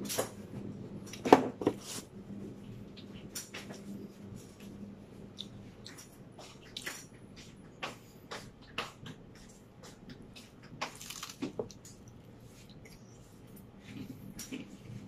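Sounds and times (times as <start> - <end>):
crunching and chewing: 7.9 - 15.0.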